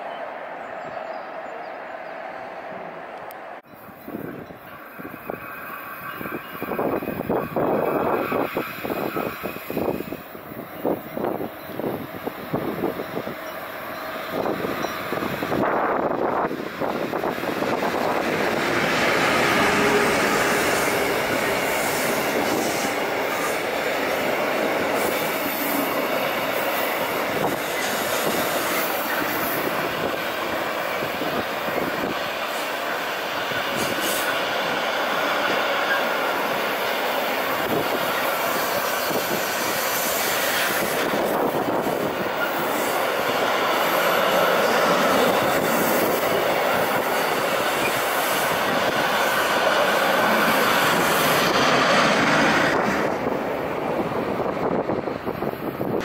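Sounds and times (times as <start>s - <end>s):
train wheels on rails: 0.0s - 56.0s.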